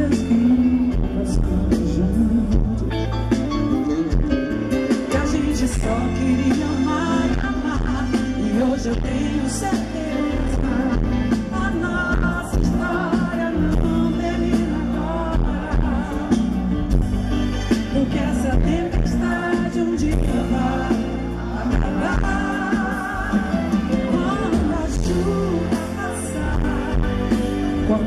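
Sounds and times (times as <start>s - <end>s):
live band playing pop ballad: 0.0s - 28.0s
woman singing into microphone: 5.2s - 17.0s, 17.8s - 28.0s.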